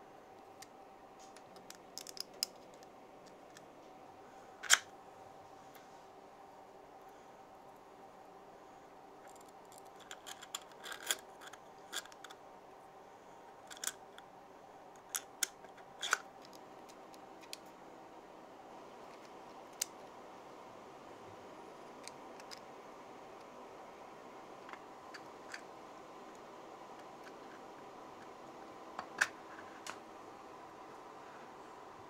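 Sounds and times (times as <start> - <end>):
faint steady hum: 0.0 - 32.0
plastic parts clicking: 0.6 - 3.7, 4.6 - 4.9, 9.3 - 12.4, 13.7 - 14.2, 15.0 - 17.7.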